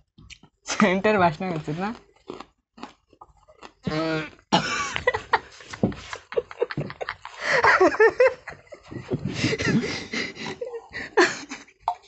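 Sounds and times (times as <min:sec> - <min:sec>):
man coughing and spluttering: 0:03.9 - 0:05.0, 0:09.0 - 0:12.0
laughter: 0:04.6 - 0:11.7.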